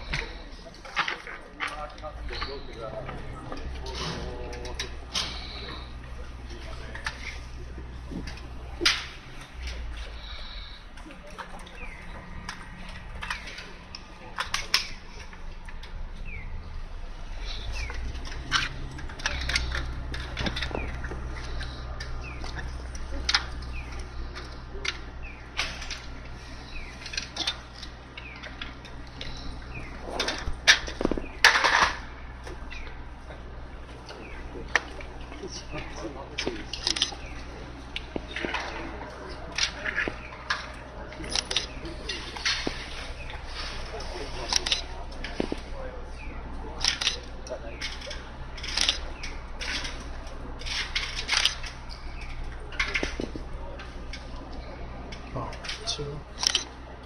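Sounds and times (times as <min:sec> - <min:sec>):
steady low hum: 0:00.0 - 0:57.0
hand tools clicking and knocking: 0:17.5 - 0:33.4
camera shutters clicking: 0:56.4 - 0:56.7.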